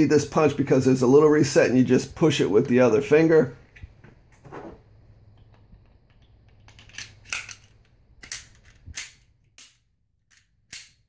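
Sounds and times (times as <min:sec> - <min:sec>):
pistol slide clicking: 0:08.2 - 0:11.0.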